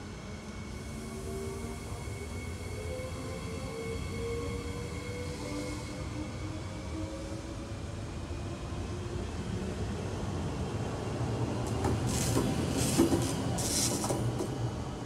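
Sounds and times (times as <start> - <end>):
train wheels rumbling on rail: 11.1 - 15.0.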